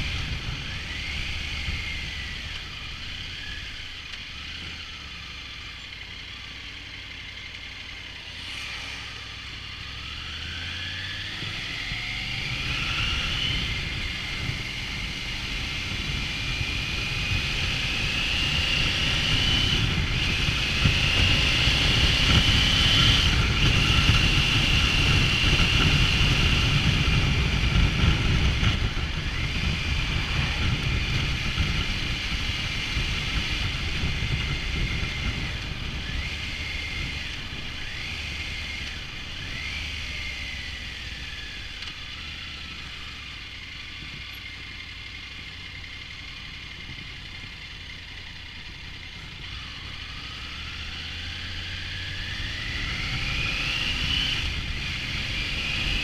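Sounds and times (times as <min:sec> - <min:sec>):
wind rumble on microphone: 0:00.0 - 0:03.9, 0:08.4 - 0:44.6
motorcycle engine: 0:00.0 - 0:56.0.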